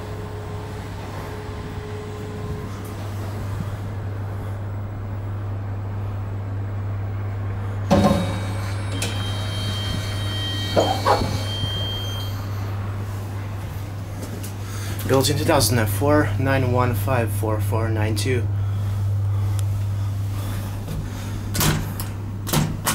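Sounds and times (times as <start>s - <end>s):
sliding doors opening: 0.0s - 4.3s, 7.8s - 14.6s
elevator hum: 0.0s - 22.9s.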